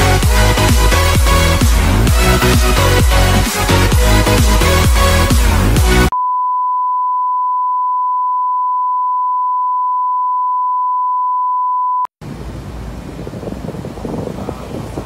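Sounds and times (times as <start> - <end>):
wind rushing: 12.2 - 15.0.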